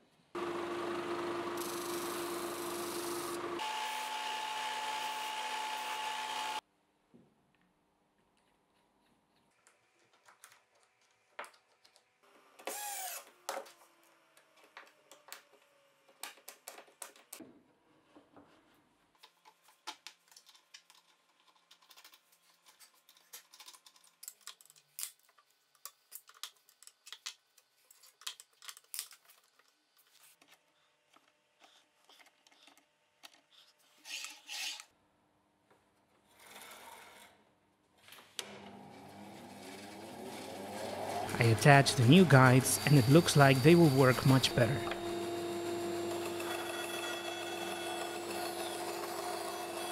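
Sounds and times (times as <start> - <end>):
band saw motor starting: 0.4 - 6.6, 38.4 - 49.9
cordless drill whir: 1.5 - 6.6, 12.6 - 13.4, 42.7 - 49.9.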